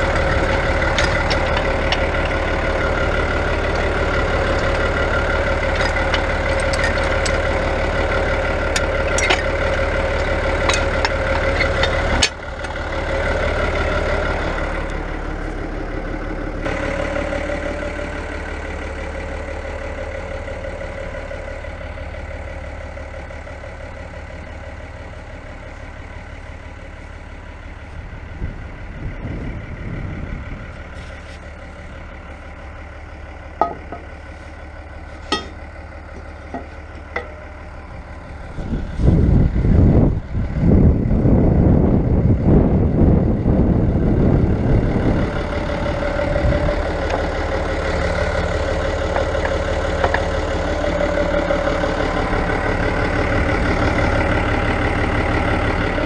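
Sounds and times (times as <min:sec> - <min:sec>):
tractor diesel engine idling: 0:00.0 - 0:56.0
sharp engine knocks: 0:33.6 - 0:34.1.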